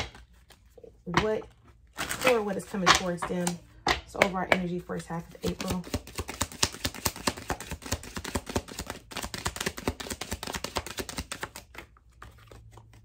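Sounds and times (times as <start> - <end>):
cards being shuffled: 0.0 - 0.9, 5.3 - 13.0.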